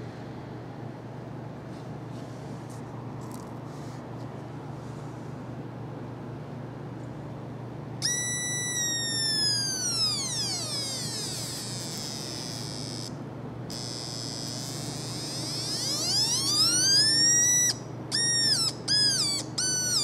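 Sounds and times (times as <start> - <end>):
whining electronic tone gliding: 8.0 - 13.1, 13.7 - 20.0.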